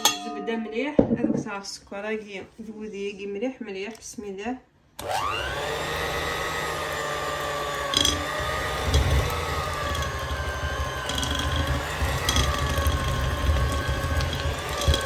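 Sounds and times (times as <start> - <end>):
electric hand mixer whining: 5.0 - 15.0
beaters clicking on glass bowl: 7.9 - 15.0.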